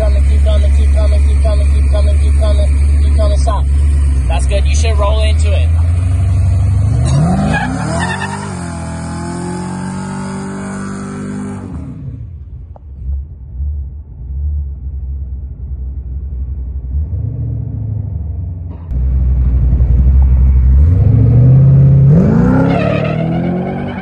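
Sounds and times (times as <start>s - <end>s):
car engine rumbling and revving: 0.0s - 24.0s.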